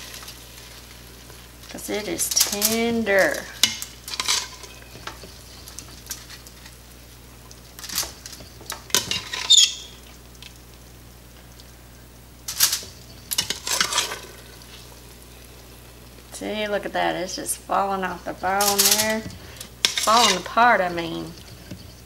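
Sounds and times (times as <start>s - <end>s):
metal tongs scraping metal pot: 1.9s - 6.3s, 7.8s - 9.9s, 12.5s - 14.5s, 18.4s - 22.0s.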